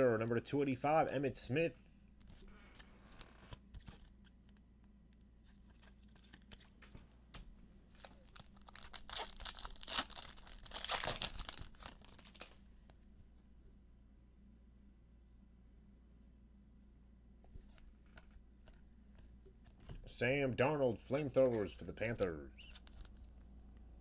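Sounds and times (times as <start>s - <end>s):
wrapper tearing and crinkling: 7.9s - 12.6s.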